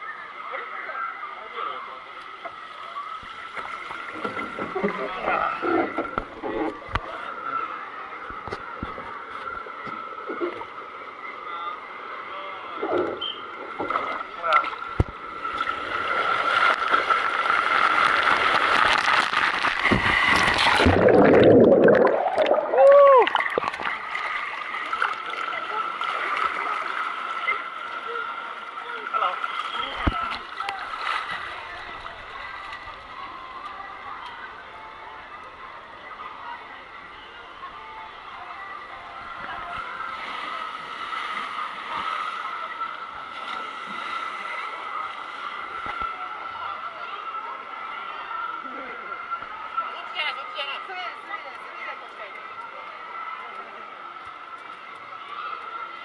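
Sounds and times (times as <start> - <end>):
water splashing in a pool: 0.0 - 56.0
plunge into a pool: 12.8 - 27.6
water rushing down a slide: 12.8 - 27.6.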